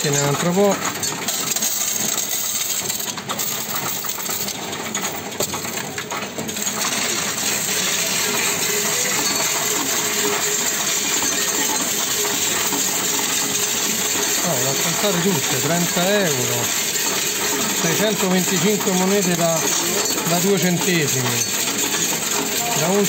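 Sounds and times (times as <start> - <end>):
coins clattering through counting machine: 0.0 - 23.0.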